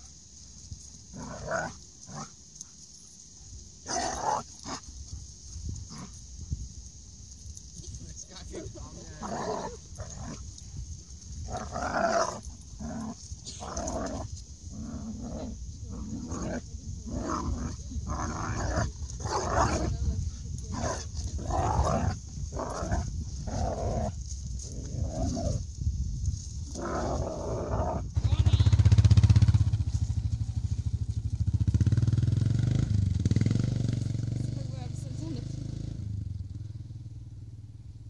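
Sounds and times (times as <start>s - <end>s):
dogs growling and snarling: 1.1s - 2.7s, 3.8s - 6.3s, 7.9s - 25.7s, 26.6s - 28.2s.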